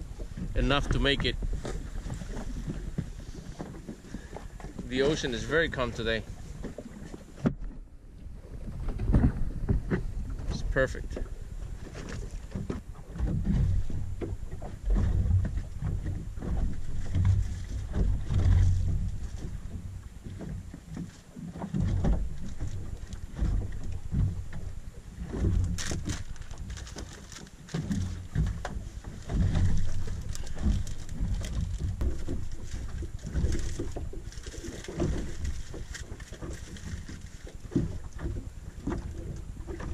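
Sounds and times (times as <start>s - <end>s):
wind buffeting microphone: 0.0s - 20.4s
brief rustle: 25.3s - 37.8s.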